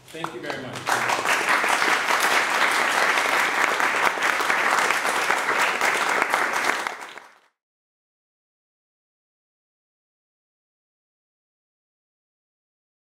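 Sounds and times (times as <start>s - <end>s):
audience applauding: 0.2s - 7.6s.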